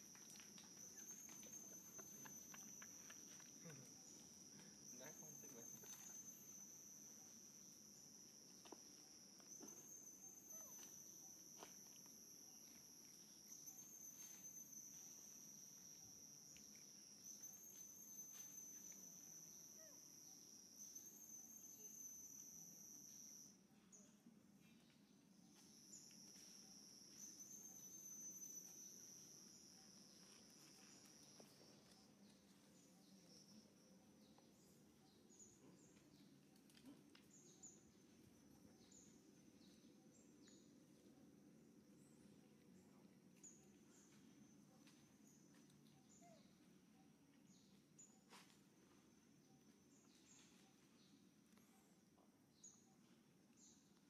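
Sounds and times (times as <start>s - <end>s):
high-pitched insect drone: 0.0s - 24.2s, 25.5s - 36.2s, 37.4s - 41.1s.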